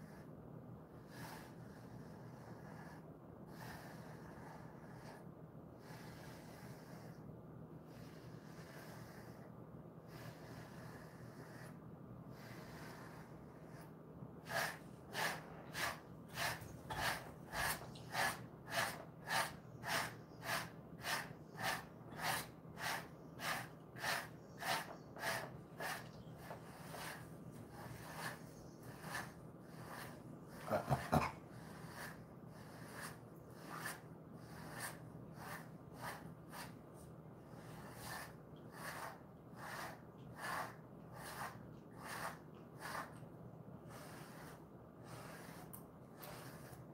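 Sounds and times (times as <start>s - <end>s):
pet brush stroking dog fur: 10.1s - 43.2s, 43.9s - 46.9s.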